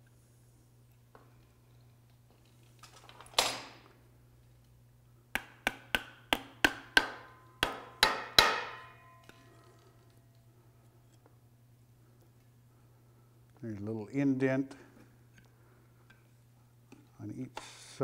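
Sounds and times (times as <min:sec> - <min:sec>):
hammer tapping metal: 0:05.4 - 0:09.3.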